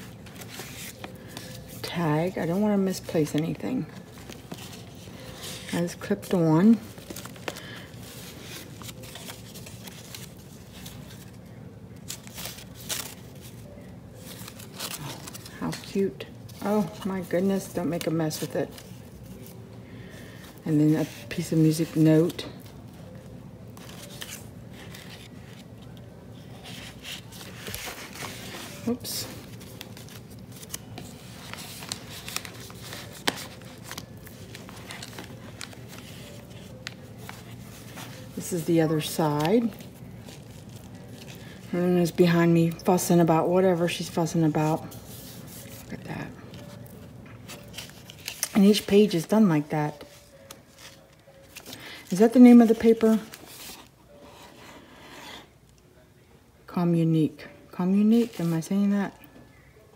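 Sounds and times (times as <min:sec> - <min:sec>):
paper rustling and scraping: 0:00.0 - 0:11.4, 0:23.8 - 0:41.7, 0:43.8 - 0:49.3, 0:49.9 - 0:55.5
low room hum: 0:00.0 - 0:59.9.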